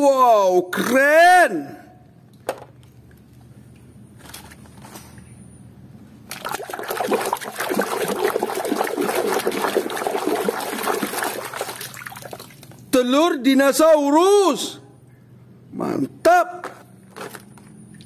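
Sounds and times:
hand scrubbing toy in water: 0:06.3 - 0:12.6.

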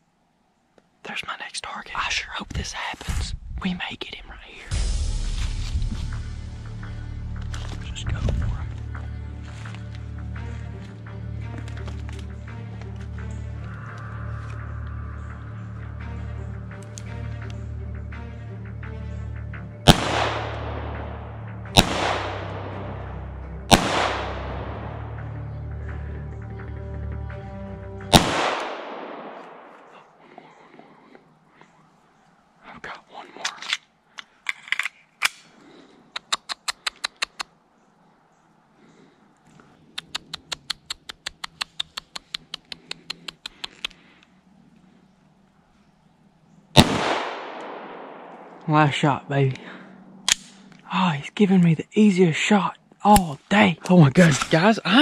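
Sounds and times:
pistol shots with echo: 0:19.9 - 0:23.0, 0:23.7 - 0:25.2, 0:28.1 - 0:30.0, 0:46.8 - 0:48.7.

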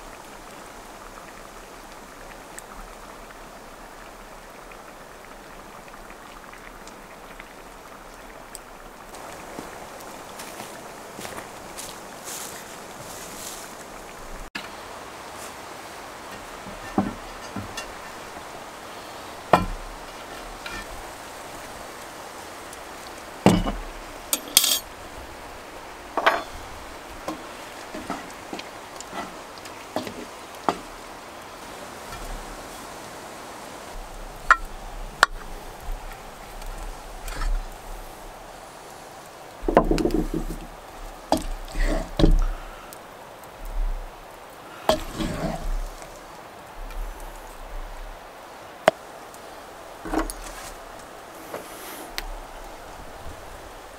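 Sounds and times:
cast iron pot knocks and clanks: 0:16.6 - 0:18.0, 0:19.5 - 0:19.9, 0:23.4 - 0:24.8, 0:26.2 - 0:26.6, 0:39.6 - 0:40.7, 0:41.3 - 0:42.5, 0:44.9 - 0:45.6, 0:50.1 - 0:50.5
wooden spoon knocking on a pot: 0:19.5 - 0:19.8
bright metallic clink: 0:24.4 - 0:24.8.

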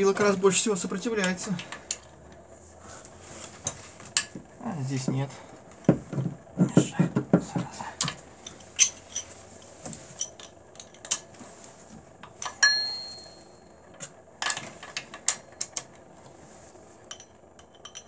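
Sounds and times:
steel tools clinking on metal: 0:08.5 - 0:09.3, 0:12.4 - 0:13.6
ringing metal clink: 0:12.5 - 0:13.9.

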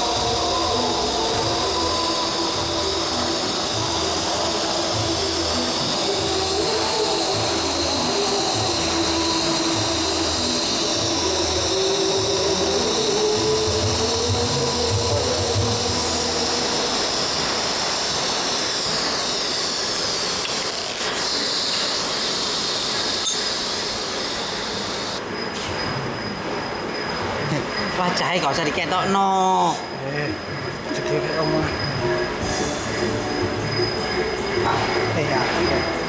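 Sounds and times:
low buzz: 0:00.0 - 0:25.3
welding arc hiss: 0:00.0 - 0:25.8
loud workshop noise: 0:00.0 - 0:36.0.

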